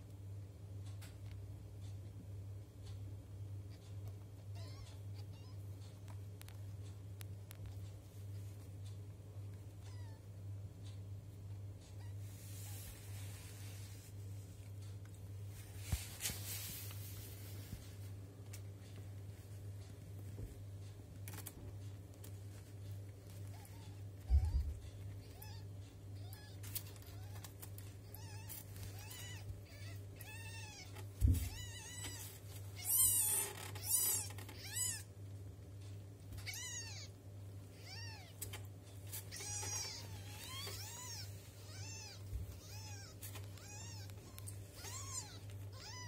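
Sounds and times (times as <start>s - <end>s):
low steady hum: 0.0s - 46.0s
kittens mewing: 23.3s - 35.1s, 36.3s - 46.0s.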